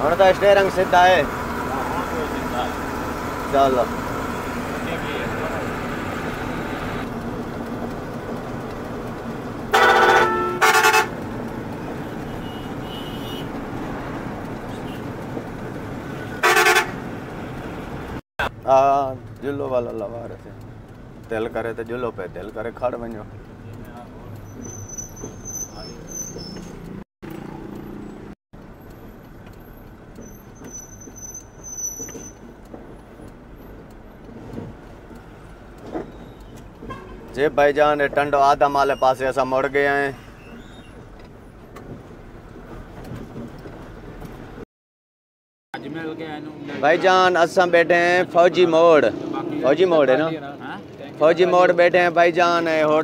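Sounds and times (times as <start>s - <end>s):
truck running with road noise: 0.0s - 44.6s, 45.8s - 53.0s
truck horn blasts: 9.7s - 11.2s, 12.2s - 13.5s, 16.3s - 17.1s, 36.9s - 37.3s
high thin squeal: 24.5s - 26.8s, 30.2s - 32.4s.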